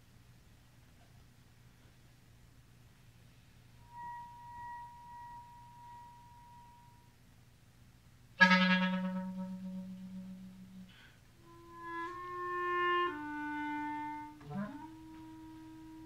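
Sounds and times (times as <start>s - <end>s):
solo clarinet playing: 8.4s - 16.0s.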